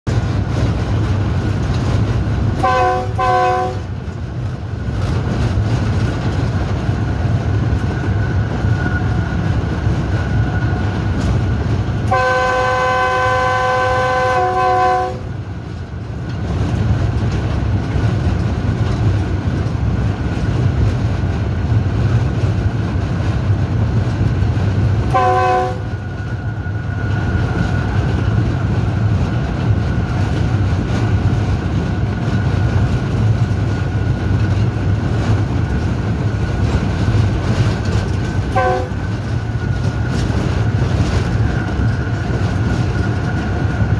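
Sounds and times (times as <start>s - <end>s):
diesel locomotive rumble: 0.0s - 43.9s
multi-tone train horn: 2.6s - 4.0s, 12.0s - 15.4s, 25.0s - 26.0s, 38.4s - 39.1s.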